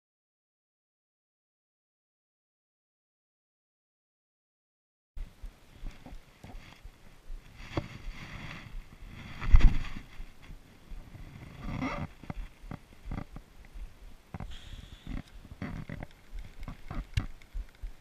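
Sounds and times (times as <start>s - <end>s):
jacket fabric rustling on camera: 5.7s - 13.4s.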